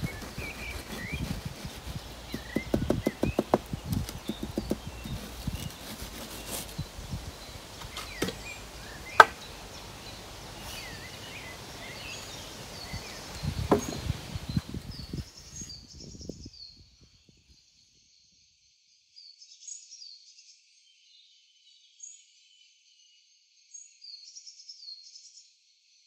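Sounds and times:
small birds chirping: 0:00.0 - 0:18.4
low taps on wet concrete: 0:02.3 - 0:05.2, 0:07.8 - 0:09.5
sharp knock: 0:09.2 - 0:09.4.

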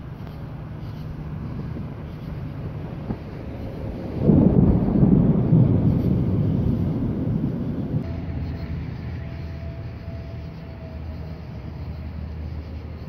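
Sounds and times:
thunder rumbling: 0:01.5 - 0:11.9
faint thin steady tone: 0:08.0 - 0:13.0.

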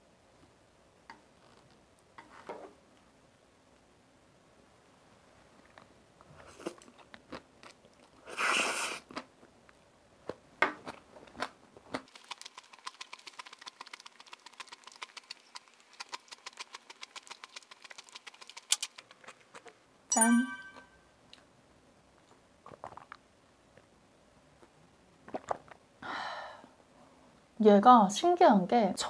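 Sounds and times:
wet chewing: 0:05.6 - 0:09.3, 0:10.2 - 0:19.8, 0:22.2 - 0:23.2
noisy noodle slurp: 0:08.0 - 0:09.2, 0:12.1 - 0:19.7.

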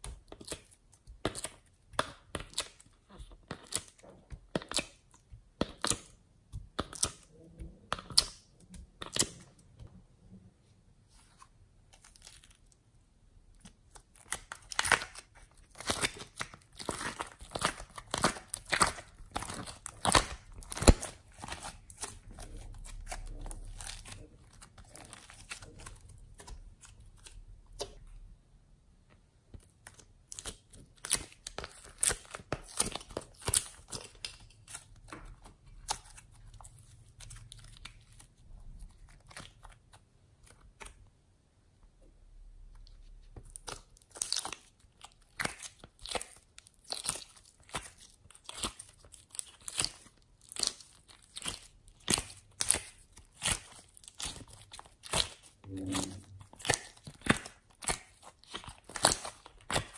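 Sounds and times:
slime crackling and popping: 0:00.0 - 0:09.6, 0:13.5 - 0:28.1, 0:29.6 - 0:41.0, 0:42.7 - 0:59.9.

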